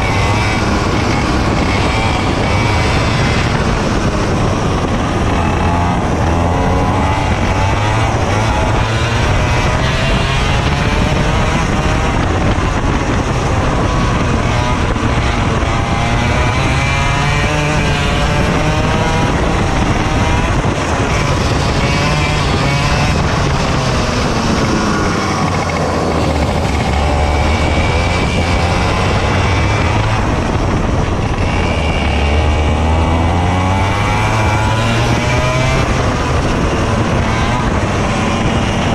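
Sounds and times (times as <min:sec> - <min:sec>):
kart engine revving: 0:00.0 - 0:38.9.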